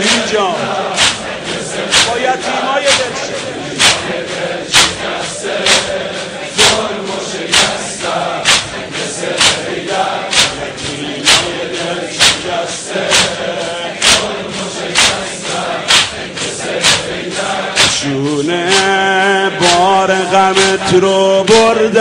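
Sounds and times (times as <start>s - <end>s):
crowd chanting: 0.0s - 22.0s
rhythmic chest-beating: 0.0s - 22.0s.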